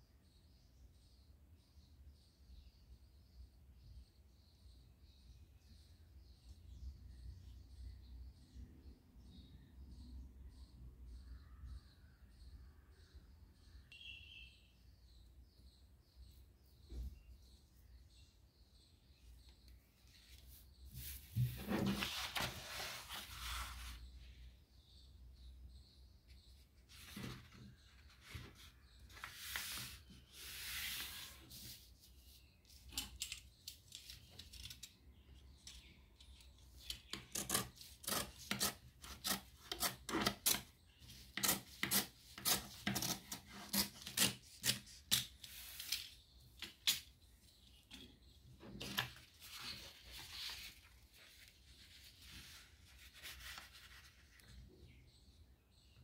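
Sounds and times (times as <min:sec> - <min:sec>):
paper sliding: 0:21.0 - 0:24.0, 0:26.9 - 0:31.9, 0:43.8 - 0:46.2
paper creases being rubbed: 0:26.9 - 0:31.9.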